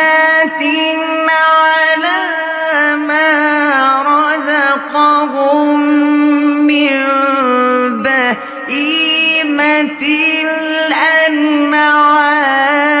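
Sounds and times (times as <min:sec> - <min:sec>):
person chanting recitation: 0:00.0 - 0:13.0.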